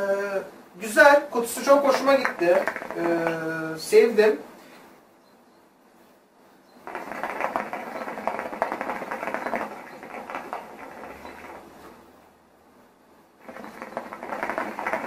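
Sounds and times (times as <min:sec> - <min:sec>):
hookah water bubbling: 0:01.8 - 0:03.5, 0:06.8 - 0:12.0, 0:13.4 - 0:15.0.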